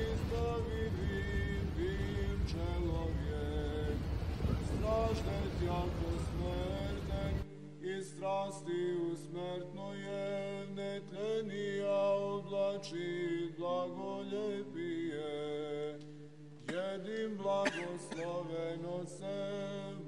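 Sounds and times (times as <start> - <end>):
rush of noise: 0.0 - 7.5
men singing a chant: 0.0 - 16.0, 16.7 - 20.0.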